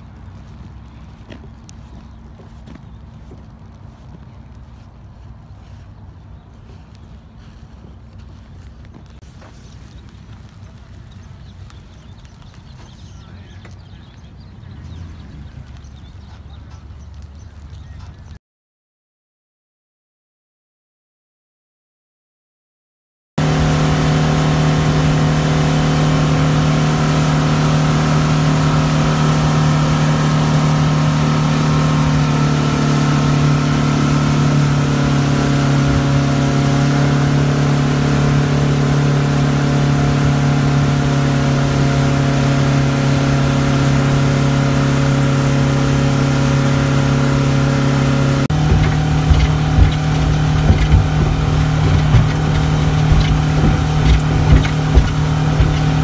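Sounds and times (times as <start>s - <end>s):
outboard motor drone: 0.0s - 18.0s, 23.4s - 56.0s
irregular low thumps: 45.1s - 56.0s.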